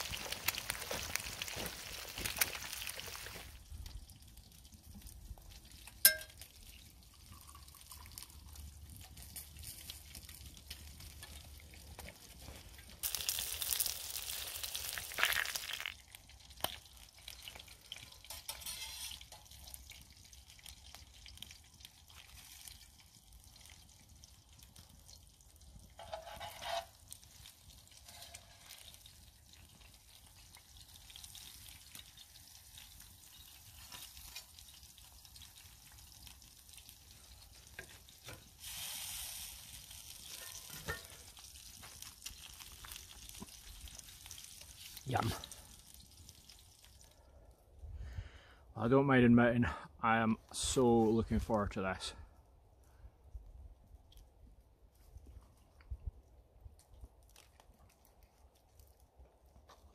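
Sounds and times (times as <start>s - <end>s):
food sizzling on hot plate: 0.0s - 3.6s, 13.0s - 16.1s, 26.0s - 46.8s
light knocks and scrapes: 26.0s - 26.9s.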